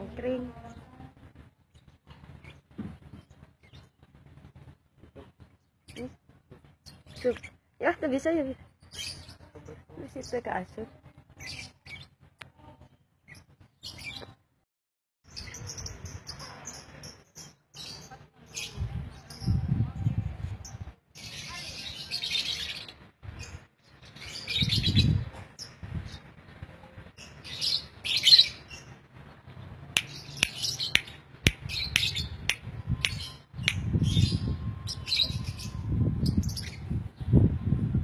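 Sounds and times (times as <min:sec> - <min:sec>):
birds chirping shrilly: 0:27.2 - 0:28.9, 0:30.0 - 0:36.8.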